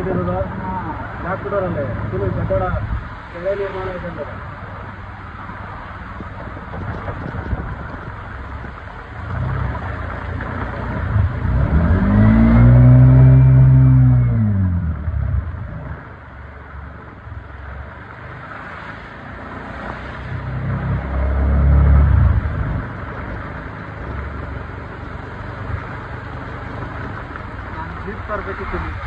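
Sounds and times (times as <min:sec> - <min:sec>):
road traffic: 0:00.0 - 0:29.0
vehicle engine revving: 0:09.2 - 0:16.1, 0:18.4 - 0:24.4.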